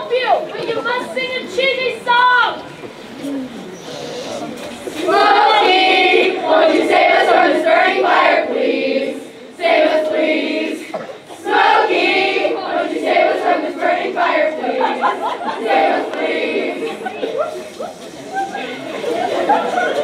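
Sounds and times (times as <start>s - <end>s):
girls singing in unison: 5.0s - 17.3s.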